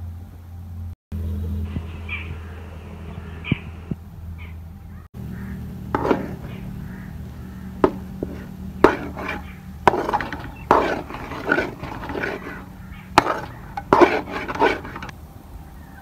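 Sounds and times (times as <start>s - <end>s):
low hum: 0.0s - 16.0s
metal spatula scraping pot: 5.9s - 6.8s, 7.6s - 15.1s.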